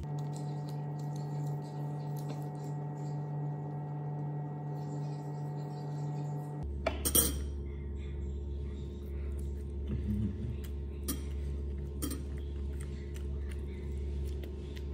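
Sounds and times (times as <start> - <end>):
steady hum: 0.0 - 14.9.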